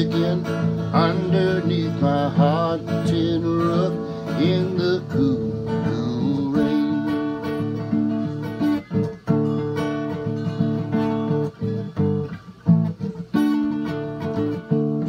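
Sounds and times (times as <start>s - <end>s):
acoustic guitar strummed chords: 0.0s - 15.0s.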